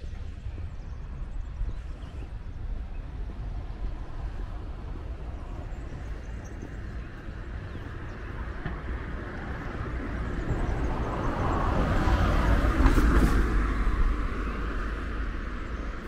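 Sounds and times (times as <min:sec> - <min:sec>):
vehicle passing by: 0:07.9 - 0:16.0.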